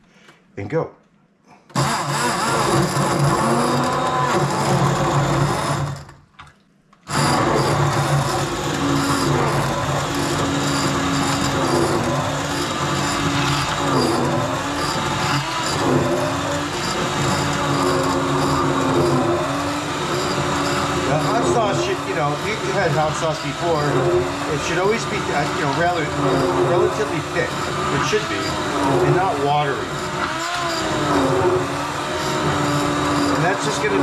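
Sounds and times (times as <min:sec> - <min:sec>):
electric blender motor: 0:01.7 - 0:06.2, 0:07.1 - 0:34.0.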